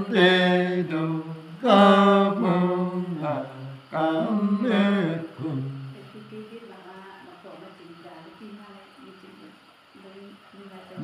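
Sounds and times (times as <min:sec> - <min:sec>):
man singing unaccompanied: 0:00.0 - 0:06.0.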